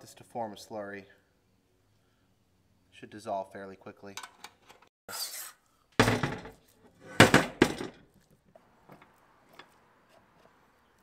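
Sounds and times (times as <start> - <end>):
heavy vise thunking on workbench: 6.0 - 8.0.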